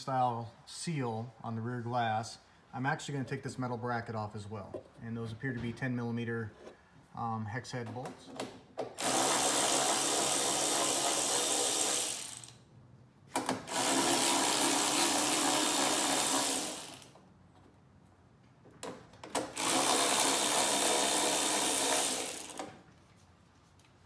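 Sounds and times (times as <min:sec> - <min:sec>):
cordless drill running: 0:09.0 - 0:12.6, 0:13.6 - 0:17.2, 0:19.5 - 0:22.7.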